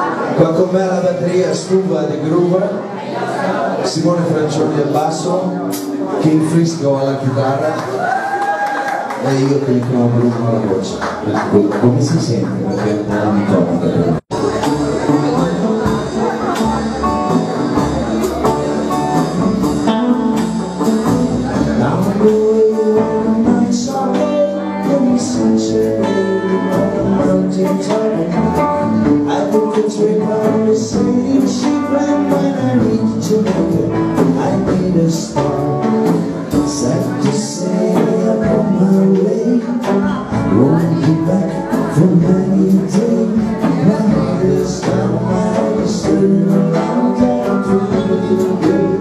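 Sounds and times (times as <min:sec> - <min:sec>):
drums: 0:03.8 - 0:49.0
electric guitars: 0:04.6 - 0:49.0
electric bass: 0:09.2 - 0:49.0
person singing: 0:14.0 - 0:49.0.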